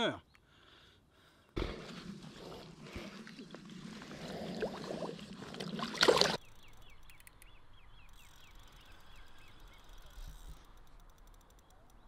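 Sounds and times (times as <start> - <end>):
fish splashing into lake: 1.6 - 6.4
water sloshing and splashing: 1.6 - 6.5.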